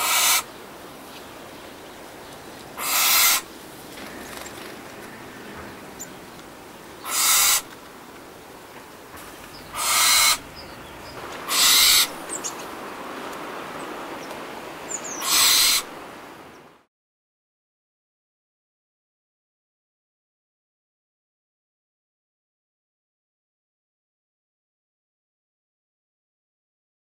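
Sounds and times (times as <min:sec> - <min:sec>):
owl screeching: 0:00.0 - 0:00.5, 0:02.8 - 0:03.5, 0:07.0 - 0:07.7, 0:09.7 - 0:10.7, 0:11.5 - 0:12.2, 0:15.1 - 0:15.9
steady background hiss: 0:00.0 - 0:16.9.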